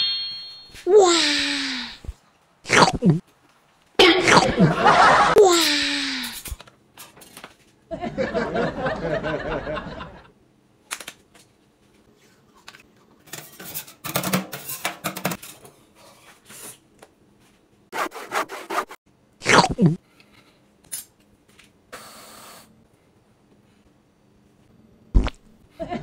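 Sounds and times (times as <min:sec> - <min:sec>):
cutlery scraping on a plate: 0:13.3 - 0:15.7.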